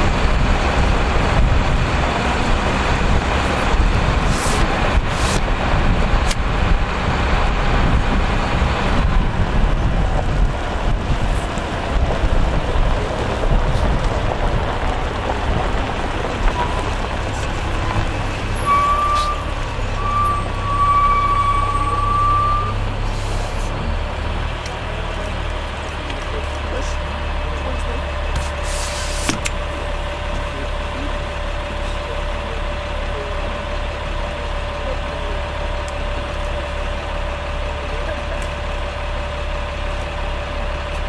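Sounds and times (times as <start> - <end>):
bus engine and road noise: 0.0 - 41.0
thin high squeal: 18.5 - 22.8.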